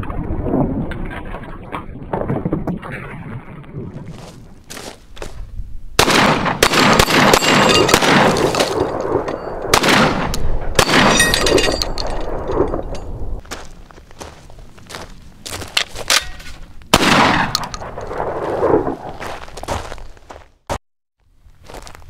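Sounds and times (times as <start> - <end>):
shotgun shots: 6.0 - 11.6, 16.2 - 18.9
steel targets ringing: 7.0 - 9.6, 10.8 - 13.1.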